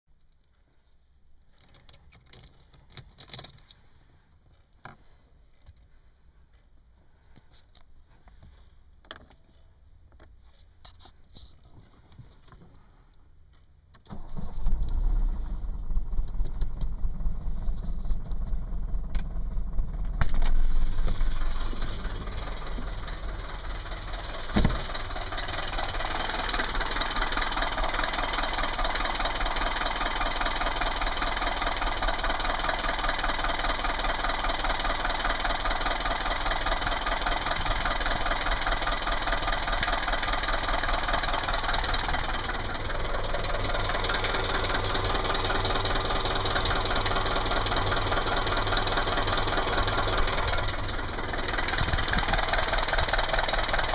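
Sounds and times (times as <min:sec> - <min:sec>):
diesel engine idling roughly: 0:14.1 - 0:53.9.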